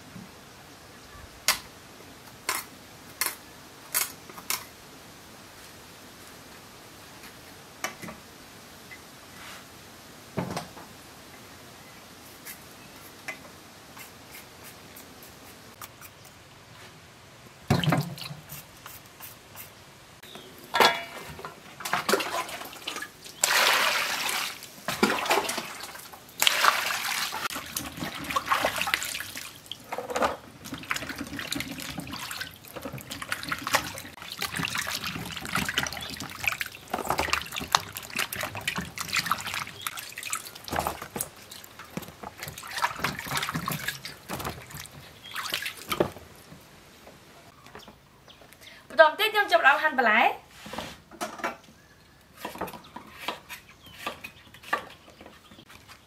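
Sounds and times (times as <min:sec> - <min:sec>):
water splashing in metal basin: 0:20.7 - 0:46.2.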